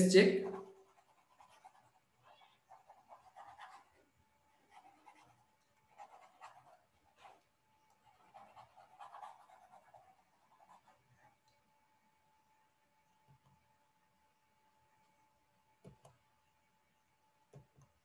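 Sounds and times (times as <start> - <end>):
stylus scratching on tablet screen: 0.0 - 11.6, 15.8 - 16.2.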